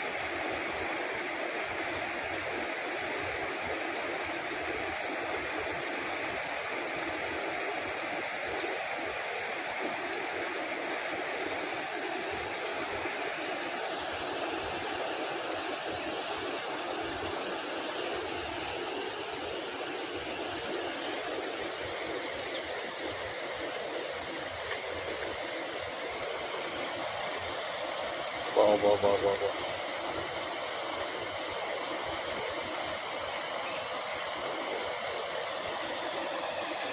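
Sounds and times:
waterfall rushing: 0:00.0 - 0:36.9.

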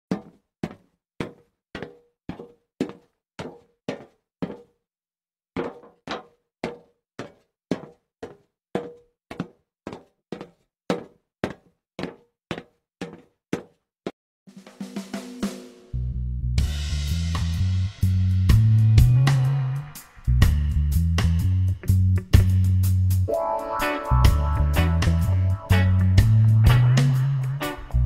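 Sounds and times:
knock-like cartoon footsteps: 0:00.1 - 0:04.8, 0:05.6 - 0:14.2.

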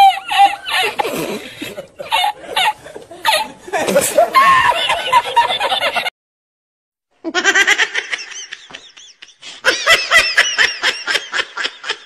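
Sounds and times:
high-pitched laughing: 0:00.0 - 0:06.1.

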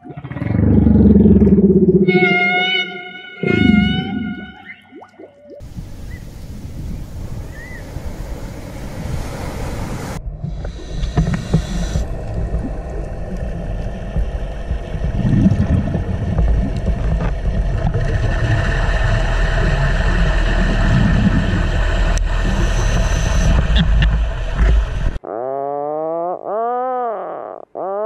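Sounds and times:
gliding pitched tone: 0:00.0 - 0:05.6
underwater low rumble with hiss: 0:04.9 - 0:25.2.

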